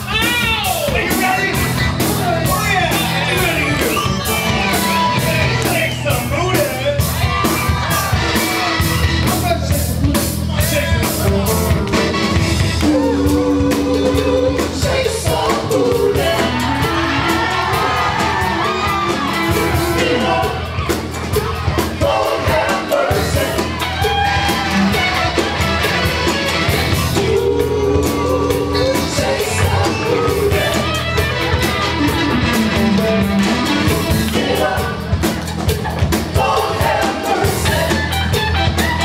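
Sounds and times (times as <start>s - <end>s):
bass line: 0.0s - 39.0s
congas: 0.0s - 39.0s
live band playing: 0.0s - 39.0s
man singing: 10.1s - 20.8s, 27.1s - 31.1s.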